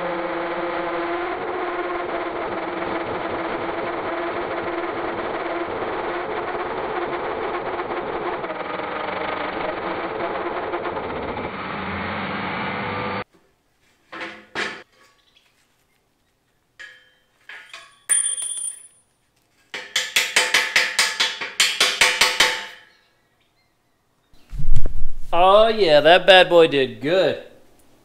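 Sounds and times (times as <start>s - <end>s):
drill grinding through steel: 0.0s - 13.2s
metal clinks: 16.8s - 19.2s
fast sharp knocks: 19.8s - 22.7s.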